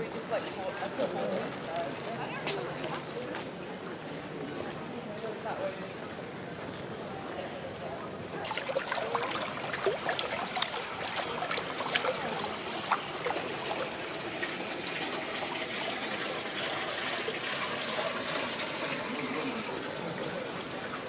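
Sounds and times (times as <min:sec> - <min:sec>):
running water splashing: 0:08.4 - 0:21.0.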